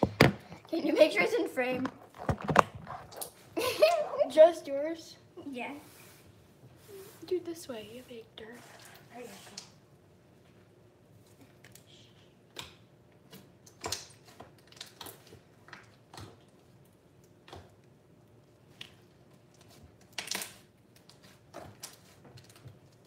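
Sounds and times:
crunchy slime crackles and pops: 12.6s - 23.0s.

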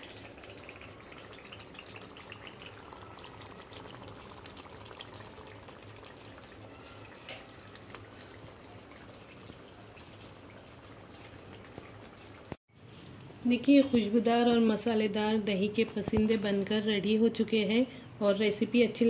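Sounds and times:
faint sizzling curry in a pan: 0.0s - 12.9s.

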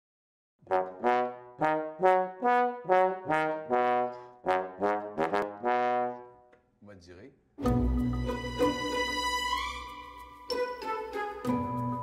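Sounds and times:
bass trombone playing notes: 0.6s - 6.4s.

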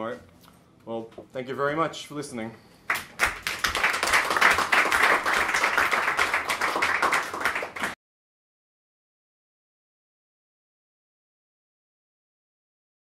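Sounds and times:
audience applauding: 2.9s - 8.0s.

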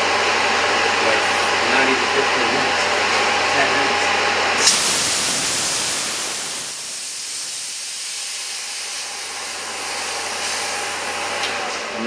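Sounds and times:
compressed air hissing: 4.6s - 11.1s.

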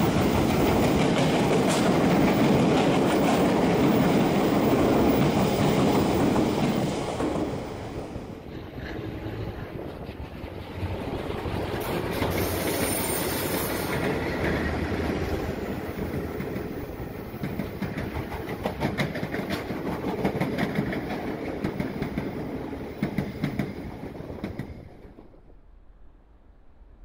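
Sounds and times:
diesel locomotives passing: 0.0s - 27.0s
train cars rolling past: 0.0s - 27.0s
wheels clicking over rail joints: 8.7s - 25.4s.

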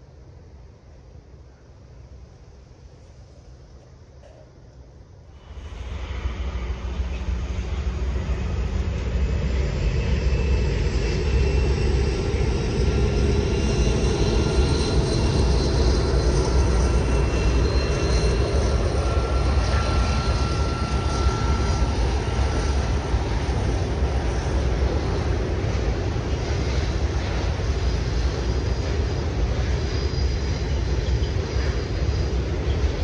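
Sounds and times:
diesel locomotive rumble: 5.1s - 33.0s
faint high steady tones: 5.4s - 24.6s.

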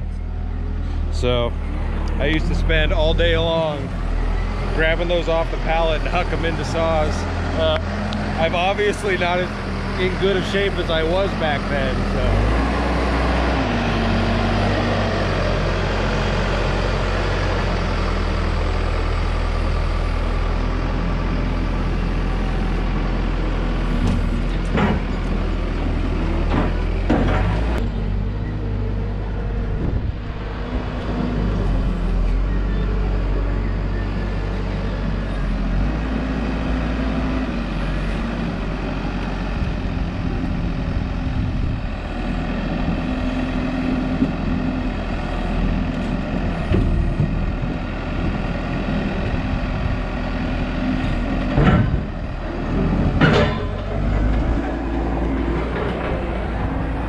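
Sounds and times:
heavy vehicle engine running: 0.0s - 57.0s
lumber clunks: 24.0s - 25.6s, 26.4s - 27.8s, 45.9s - 47.6s, 51.0s - 56.6s.

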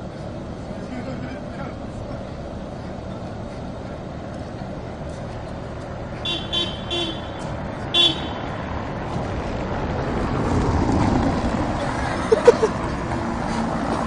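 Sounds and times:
low street noise: 0.0s - 14.0s
tram horn beeping: 6.1s - 8.6s.

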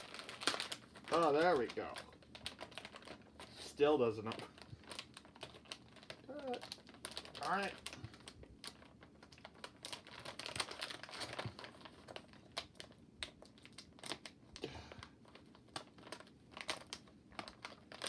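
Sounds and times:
plastic bag crinkling: 0.0s - 18.0s.

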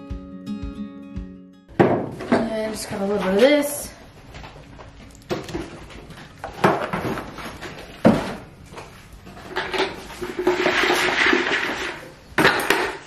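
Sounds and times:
sharp knocks on cans: 1.7s - 2.5s, 9.6s - 13.0s
rustling scrape: 5.6s - 12.2s.

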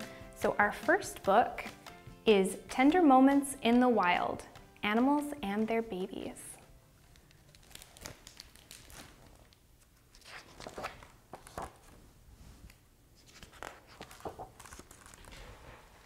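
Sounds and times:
book pages rustling: 7.0s - 16.0s.

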